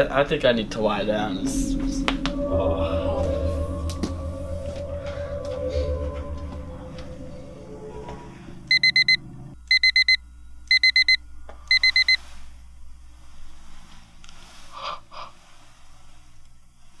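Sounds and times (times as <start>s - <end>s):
background music: 0.0s - 11.7s
digital alarm beeping: 8.7s - 12.2s.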